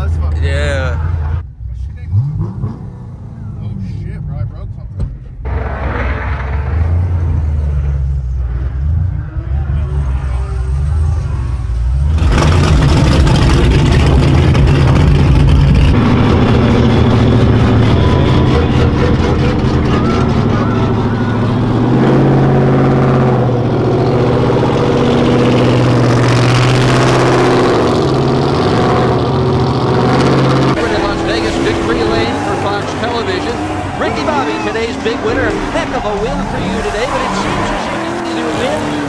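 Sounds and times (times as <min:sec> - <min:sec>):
car engine revving hard: 0:02.1 - 0:03.3, 0:05.4 - 0:08.0, 0:12.0 - 0:39.0.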